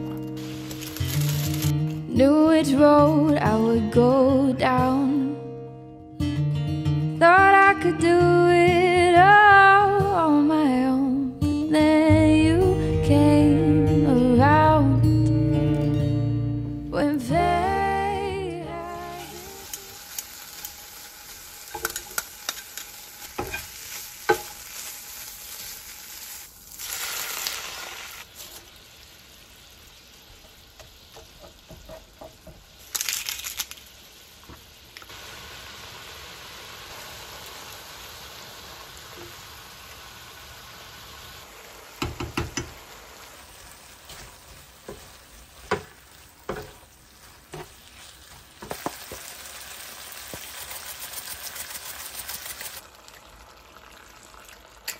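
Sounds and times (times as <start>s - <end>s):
ham sizzling in a pan: 0.0s - 2.1s, 18.7s - 54.9s
spatula knocking on pan: 31.2s - 32.6s, 42.0s - 42.8s, 44.9s - 46.8s
spaghetti simmering in water: 33.7s - 54.9s.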